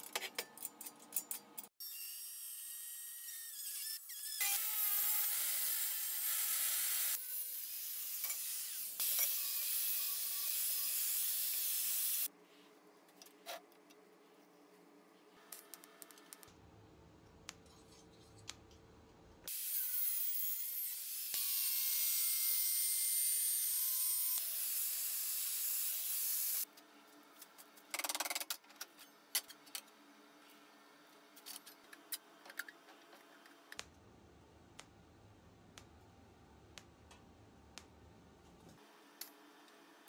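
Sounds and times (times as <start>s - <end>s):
metal parts clicking and tapping: 0.0s - 1.7s.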